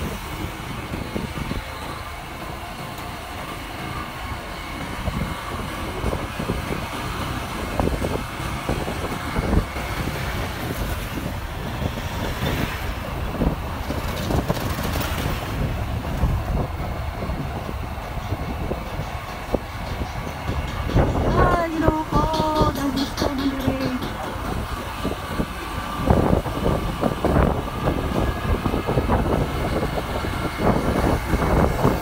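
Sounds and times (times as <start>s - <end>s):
engine and road noise: 0.0s - 32.0s
wind buffeting microphone: 0.0s - 32.0s
large vehicle passing: 5.1s - 18.6s.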